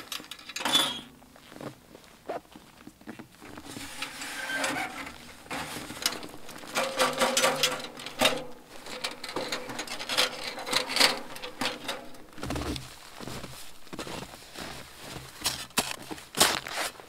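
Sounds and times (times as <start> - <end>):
metal stove knocking and rattling: 3.7 - 12.3.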